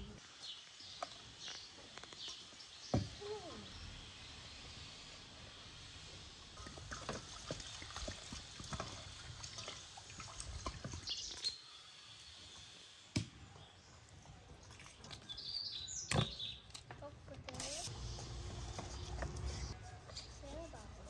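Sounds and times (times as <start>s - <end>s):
water splashing in a steel bowl: 6.6s - 11.5s.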